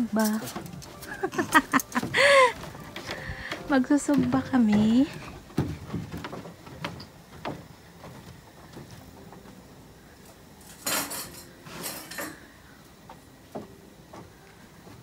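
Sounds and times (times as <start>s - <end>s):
grilling gear and dishes clicking: 0.0s - 14.3s.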